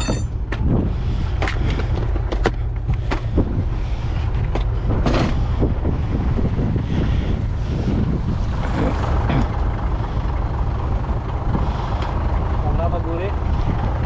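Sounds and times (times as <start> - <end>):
metallic knocks and clanks: 0.0 - 0.6
forklift engine running: 0.0 - 14.0.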